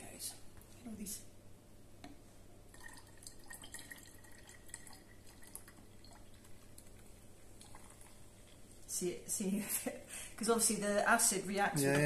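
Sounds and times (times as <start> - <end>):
soft fizzing crackle: 2.6 - 10.0
juice trickling into bottle: 2.7 - 8.9
dripping: 2.7 - 9.0.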